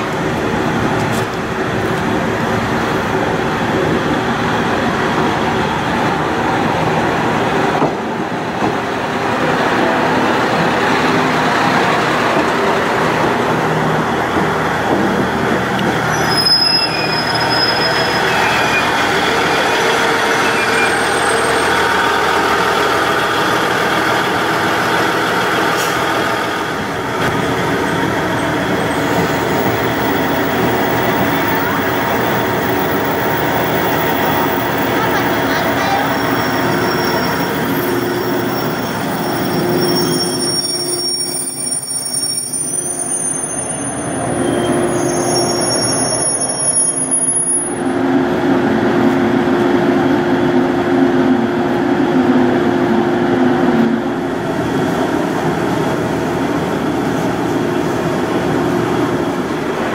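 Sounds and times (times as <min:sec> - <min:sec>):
train wheels rumbling on rails: 0:00.0 - 0:59.9
high-pitched squeal: 0:16.1 - 0:22.3, 0:28.8 - 0:47.8.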